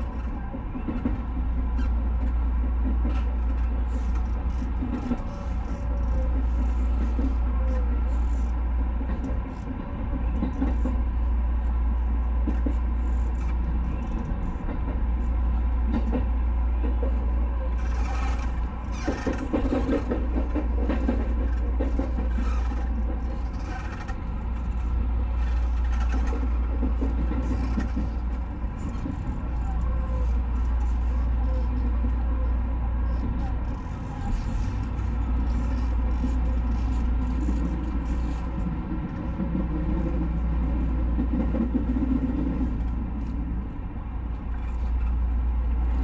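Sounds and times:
train interior rumble: 0.0 - 46.0.

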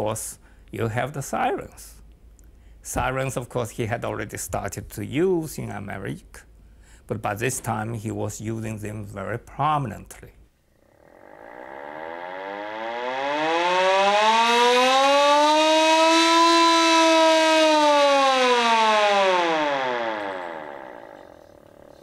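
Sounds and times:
hand-cranked siren wailing: 11.2 - 22.0.

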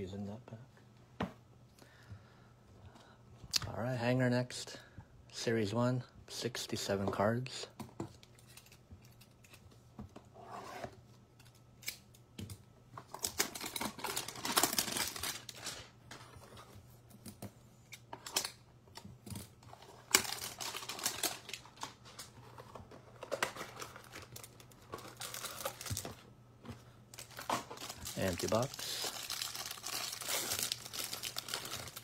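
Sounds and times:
cardboard tearing and rustling: 13.2 - 15.8, 20.0 - 22.3, 23.2 - 26.2, 27.2 - 32.0.

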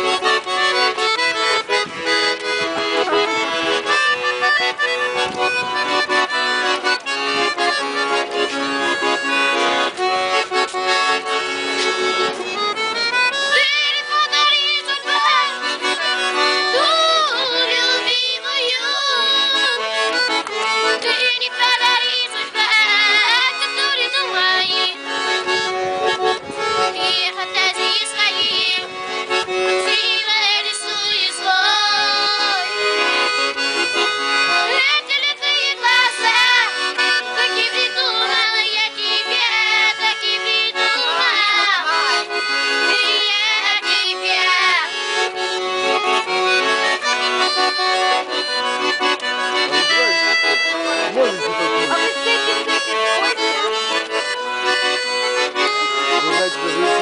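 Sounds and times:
piano accordion playing: 0.0 - 57.0
child singing: 13.6 - 16.2, 16.8 - 19.8, 27.0 - 28.8, 29.9 - 32.7, 34.7 - 36.7, 37.4 - 42.3, 43.0 - 44.9.

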